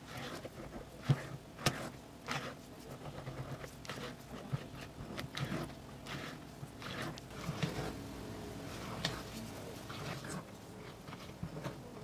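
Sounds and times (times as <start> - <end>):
spatula scraping in glass bowl: 0.0 - 8.0.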